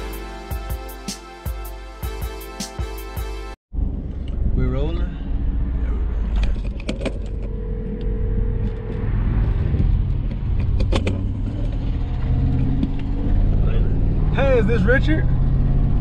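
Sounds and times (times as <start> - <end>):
car engine and road rumble: 3.7 - 16.0.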